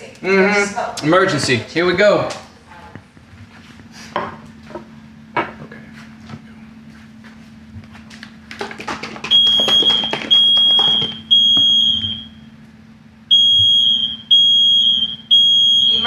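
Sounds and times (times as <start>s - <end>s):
smoke alarm beeping: 9.3s - 12.5s, 13.3s - 16.0s.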